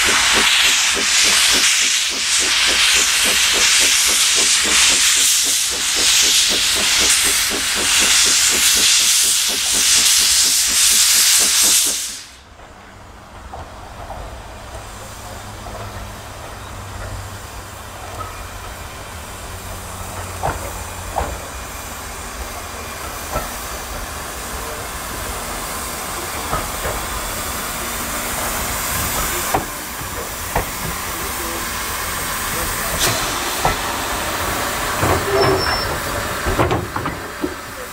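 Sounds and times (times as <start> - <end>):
pulsing steam hiss: 0.0 - 12.6, 14.5 - 37.9
train rumbling past: 0.0 - 37.9
train wheels clicking: 0.0 - 37.9.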